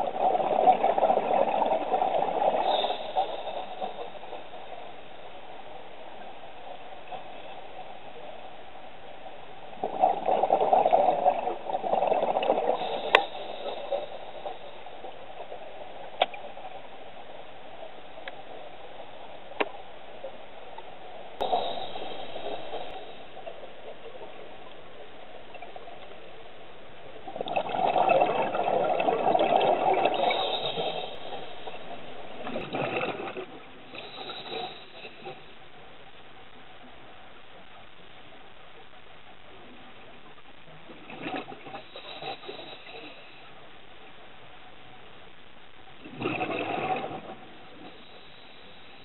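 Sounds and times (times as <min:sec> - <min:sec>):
regulator hiss: 0:02.6 - 0:05.4, 0:12.6 - 0:15.9, 0:21.4 - 0:23.7, 0:30.0 - 0:32.4, 0:33.8 - 0:36.3, 0:41.7 - 0:43.9, 0:47.5 - 0:49.0
bubbling exhalation underwater: 0:46.0 - 0:47.3.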